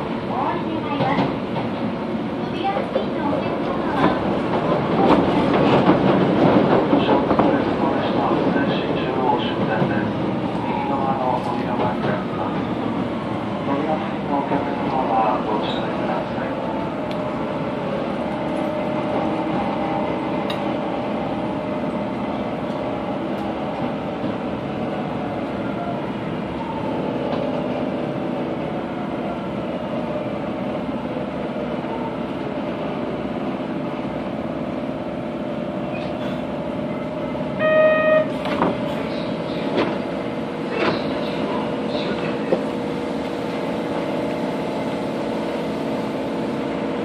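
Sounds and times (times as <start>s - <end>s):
train wheels and motors rumbling: 0.0s - 47.0s.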